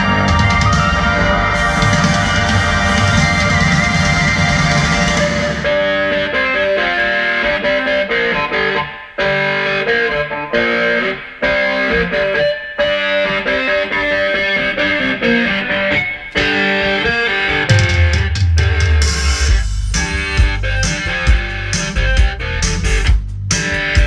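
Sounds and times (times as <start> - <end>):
heavy bass: 0.0 - 7.8, 17.7 - 24.0
distorted electric guitar melody: 0.0 - 24.0.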